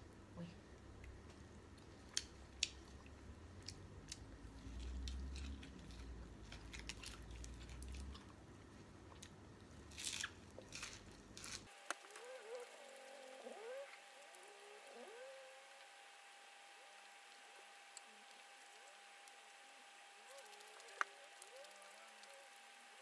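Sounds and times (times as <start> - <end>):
small clicks and crackles: 1.3 - 8.3, 9.2 - 16.0, 17.2 - 23.0
chewing and crunching food: 1.8 - 13.9
faint wavering tones: 11.7 - 23.0.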